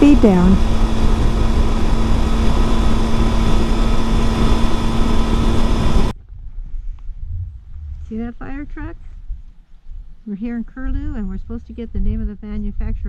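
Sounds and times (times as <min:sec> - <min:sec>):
motorcycle engine droning: 0:00.0 - 0:06.1
wind noise: 0:00.0 - 0:13.0.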